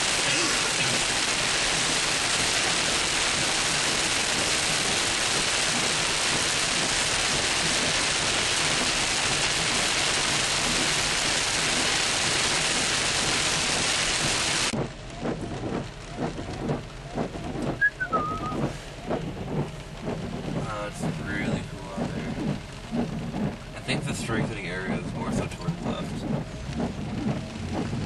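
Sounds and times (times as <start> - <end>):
heavy rain on car roof: 0.0 - 28.0
scattered drop taps: 14.8 - 28.0.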